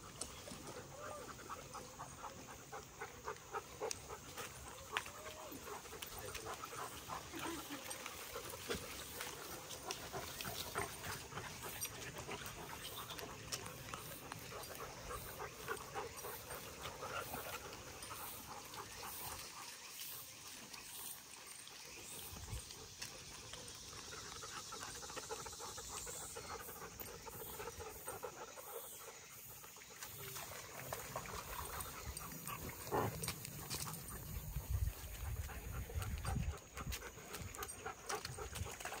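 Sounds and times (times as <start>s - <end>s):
dogs panting: 0.0s - 39.0s
small clicks and scuffs: 32.3s - 34.4s.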